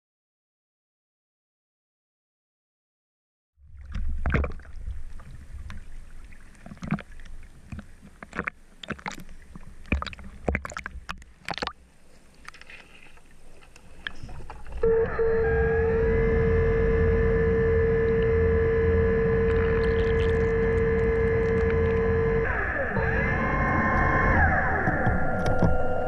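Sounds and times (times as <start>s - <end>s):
water sloshing and splashing: 3.6s - 14.9s, 19.5s - 22.0s
low rumble: 14.3s - 26.0s.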